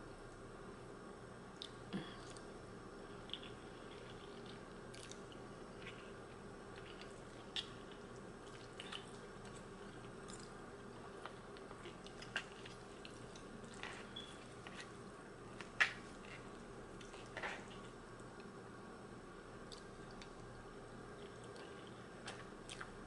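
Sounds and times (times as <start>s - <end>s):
faint steady hum: 0.0s - 23.0s
person chewing: 3.2s - 18.5s, 21.1s - 23.0s.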